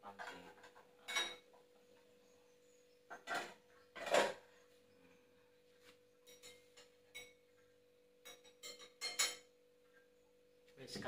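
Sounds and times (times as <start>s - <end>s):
metal utensil scraping a pan: 3.1s - 4.5s.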